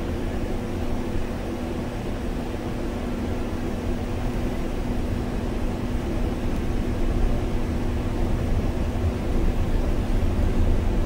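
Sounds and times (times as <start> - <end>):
bus engine and tyre rumble: 0.0 - 11.0
constant low hum: 0.0 - 11.0.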